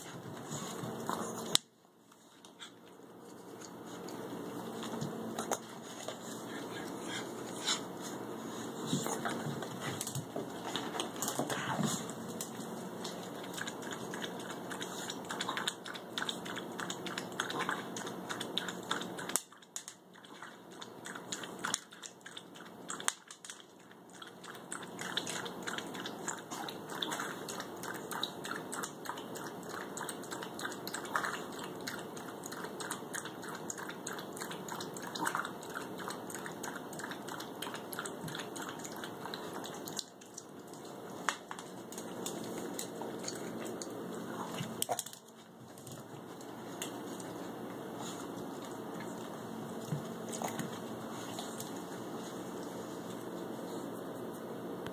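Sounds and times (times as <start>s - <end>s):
dog crunching food: 8.9s - 52.1s.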